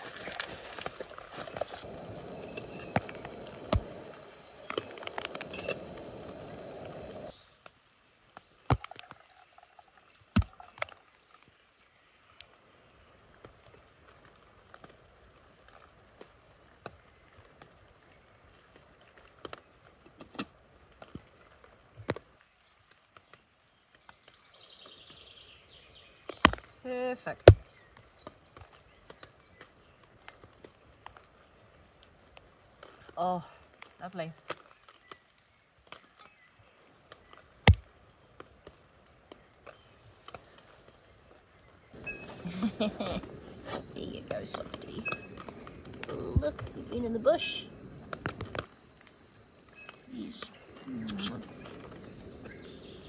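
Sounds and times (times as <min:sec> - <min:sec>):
hot water pouring into flask: 0:00.0 - 0:07.5, 0:08.4 - 0:11.5, 0:41.9 - 0:53.0
drops tapping on a tarp: 0:37.0 - 0:41.0
high falling chirp: 0:41.9 - 0:47.8.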